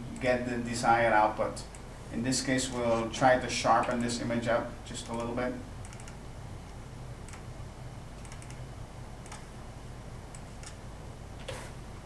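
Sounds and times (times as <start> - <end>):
steady low hum: 0.0 - 12.0
computer clicks: 5.0 - 6.2, 8.2 - 8.6, 9.2 - 9.5, 10.3 - 10.8.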